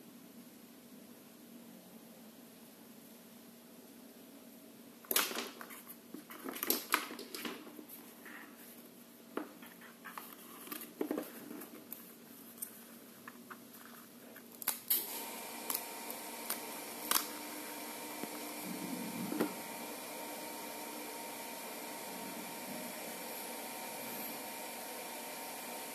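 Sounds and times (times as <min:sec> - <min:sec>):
background hum with whine: 0:15.5 - 0:25.2.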